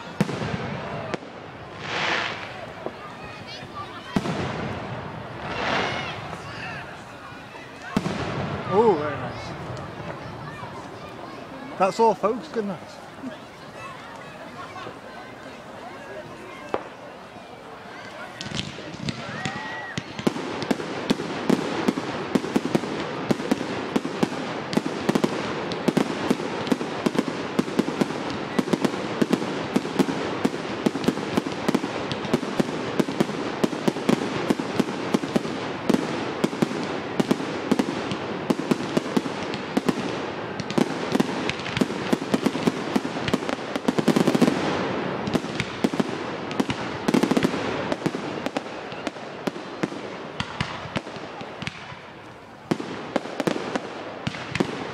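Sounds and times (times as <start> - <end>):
fireworks bangs and crackles: 0.0 - 54.9.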